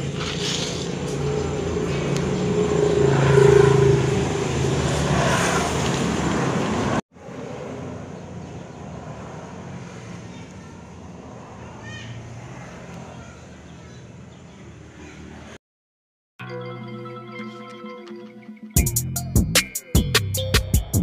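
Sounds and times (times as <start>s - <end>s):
vehicle engine running: 0.0s - 5.0s.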